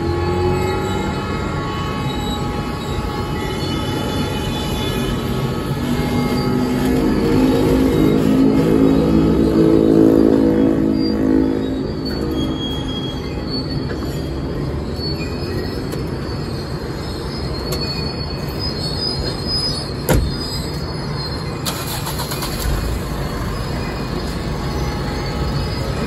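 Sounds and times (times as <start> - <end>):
faint high wheel squeal: 0.0 - 26.0.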